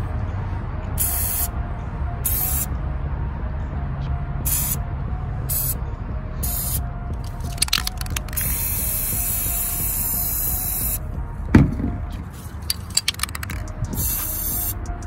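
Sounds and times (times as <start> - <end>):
spray can hissing: 5.5 - 5.8, 6.4 - 11.0, 12.6 - 14.8
spray can ball rattling: 6.4 - 11.0, 11.6 - 14.8
thump: 11.5 - 12.1.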